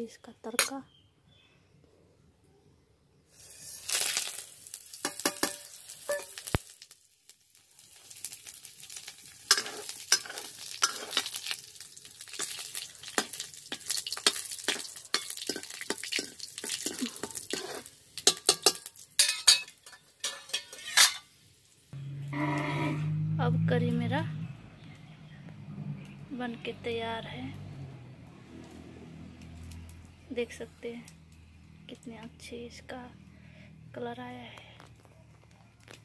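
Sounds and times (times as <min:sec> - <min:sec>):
spices sizzling in hot oil: 0:03.3 - 0:22.0
oil popping and spattering: 0:03.7 - 0:19.9.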